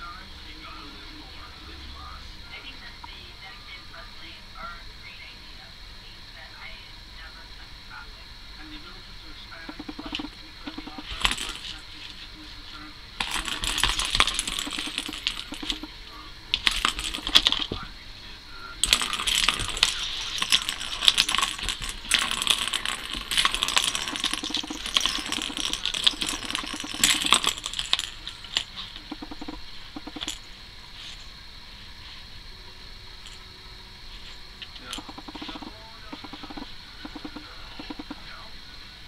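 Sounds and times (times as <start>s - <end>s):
plastic ball rattling in toy track: 9.8s - 11.8s, 13.2s - 15.9s, 16.6s - 17.7s, 18.8s - 30.4s.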